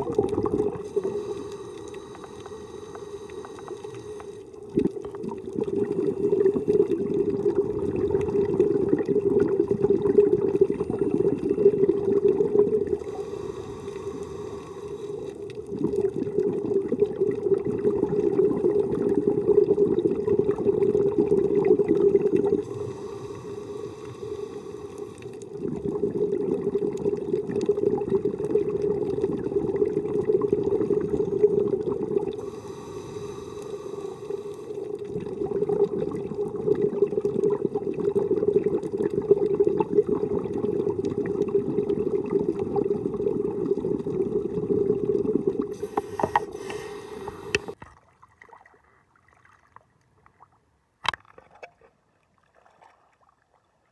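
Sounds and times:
exhaled bubbles underwater: 0:00.0 - 0:47.8
hissing inhalation through regulator: 0:00.4 - 0:04.7, 0:12.8 - 0:15.8, 0:22.2 - 0:26.2, 0:30.9 - 0:36.3, 0:45.5 - 0:47.8.

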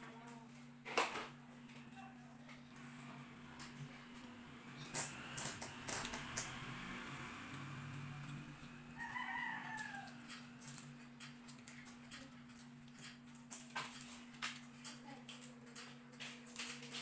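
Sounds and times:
steady low hum: 0:00.0 - 0:17.0
rooster crowing: 0:07.7 - 0:10.8.

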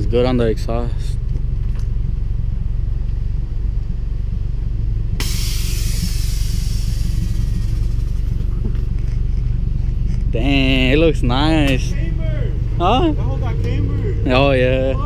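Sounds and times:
car engine idling: 0:00.0 - 0:15.0
hiss: 0:05.2 - 0:08.2.

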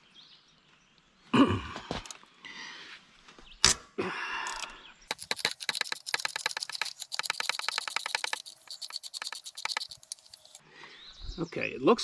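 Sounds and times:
ratchet wrench clicking: 0:04.5 - 0:10.6.

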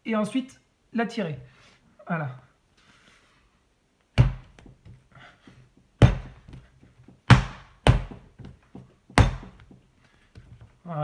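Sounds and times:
dough slapped onto marble: 0:06.0 - 0:09.8.

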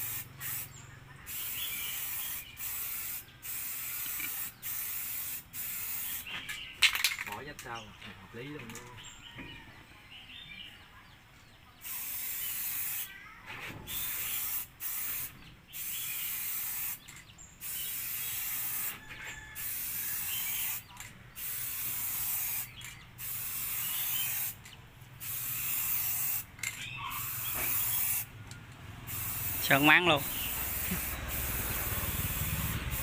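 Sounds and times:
spray-paint can hissing: 0:00.0 - 0:07.1, 0:11.8 - 0:13.1, 0:13.9 - 0:19.0, 0:19.6 - 0:28.3, 0:29.0 - 0:33.0.

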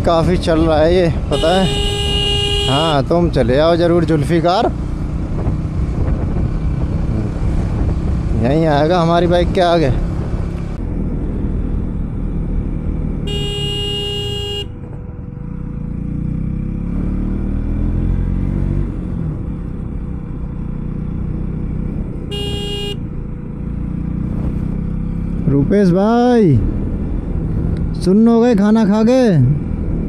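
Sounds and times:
motorcycle engine climbing: 0:00.0 - 0:30.0
horn blasts: 0:01.3 - 0:03.2, 0:13.2 - 0:14.8, 0:22.3 - 0:23.1.

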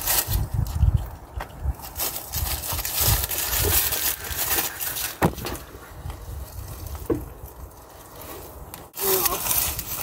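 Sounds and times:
camera jostling rumble: 0:00.0 - 0:07.9.

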